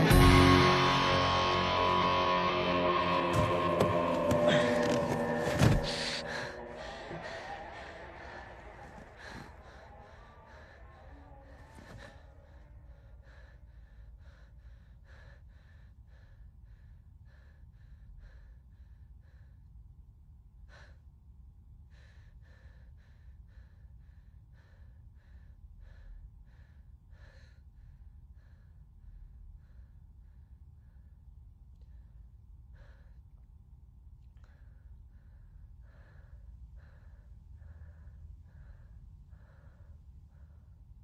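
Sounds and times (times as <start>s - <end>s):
man panting: 3.0s - 19.6s.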